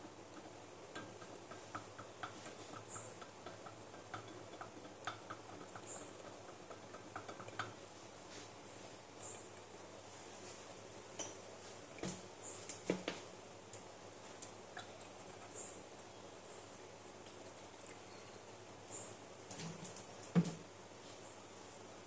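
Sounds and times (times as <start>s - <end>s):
low steady hum: 0.0s - 22.0s
rod ticking against glass: 0.2s - 7.8s.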